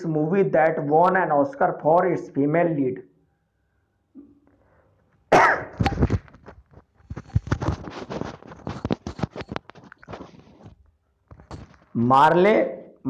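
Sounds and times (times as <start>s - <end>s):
handling rustles and clicks: 5.8s - 12.0s.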